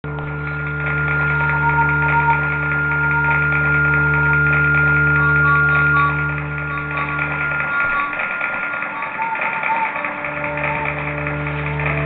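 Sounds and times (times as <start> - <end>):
drone music: 0.0 - 12.0
faint high notes: 0.1 - 12.0.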